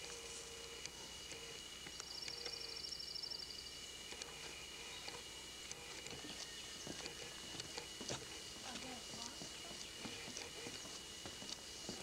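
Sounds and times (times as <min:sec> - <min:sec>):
faint steady high whine: 0:00.0 - 0:12.0
outdoor background noise: 0:00.0 - 0:12.0
songbird trill: 0:02.0 - 0:03.8.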